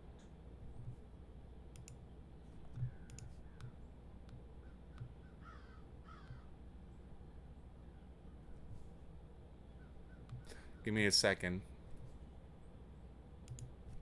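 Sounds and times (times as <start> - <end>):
soft clicks: 1.7 - 5.2, 13.4 - 14.0
faint short bird calls: 4.6 - 6.5.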